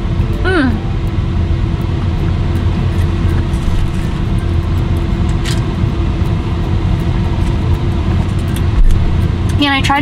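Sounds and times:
steady tone: 0.0s - 7.0s
low rumble and hum: 0.0s - 10.0s.

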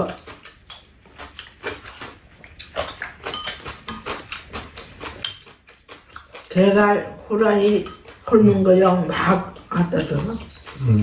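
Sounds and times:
spoons clinking against bowls: 0.0s - 0.9s, 2.7s - 4.1s, 5.2s - 5.5s, 7.4s - 10.9s
chewing mouth sounds: 0.0s - 6.8s, 7.4s - 11.0s.

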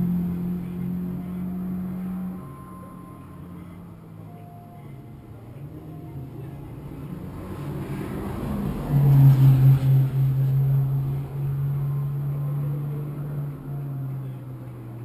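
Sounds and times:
car engine droning: 0.0s - 15.0s.

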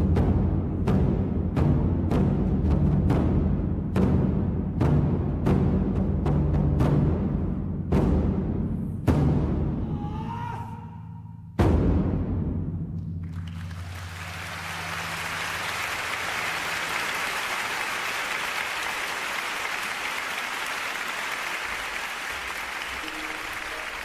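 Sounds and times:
audience applauding: 13.2s - 24.0s.

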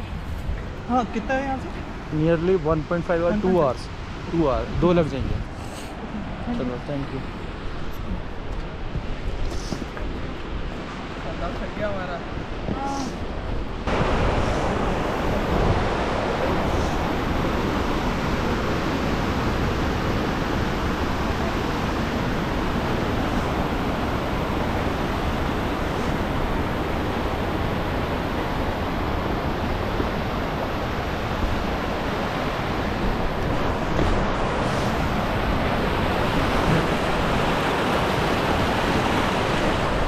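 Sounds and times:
stream rushing over rocks: 8.9s - 40.0s.

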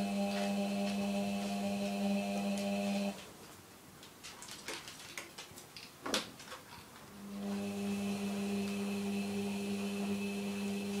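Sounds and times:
washing machine hum with high whine: 0.0s - 3.2s, 7.1s - 11.0s.

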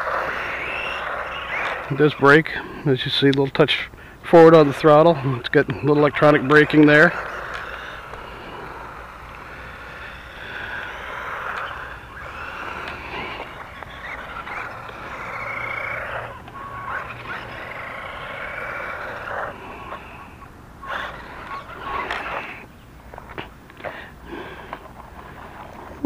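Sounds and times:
toy car electric motor whining: 0.0s - 2.0s, 6.0s - 22.6s.

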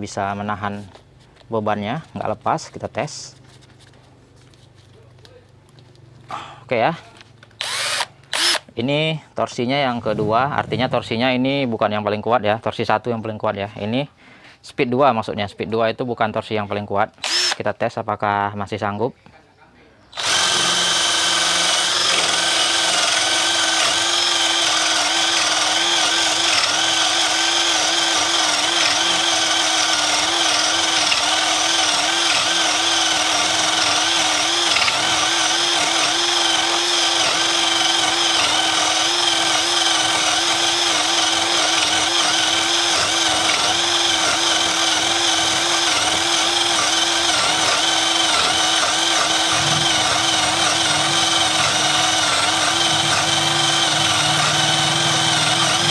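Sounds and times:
cordless drill boring through wood: 7.6s - 8.7s, 17.2s - 17.6s, 20.2s - 55.9s.

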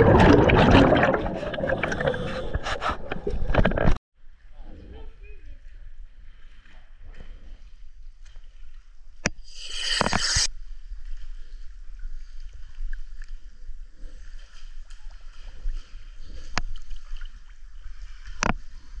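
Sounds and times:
water splashing: 0.0s - 3.9s
water sloshing and lapping: 0.0s - 4.0s, 11.0s - 19.0s.

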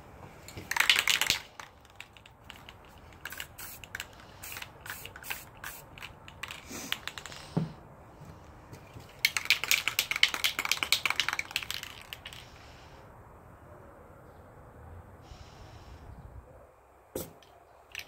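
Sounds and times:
spray can spitting bursts: 0.7s - 7.4s, 9.2s - 12.4s.

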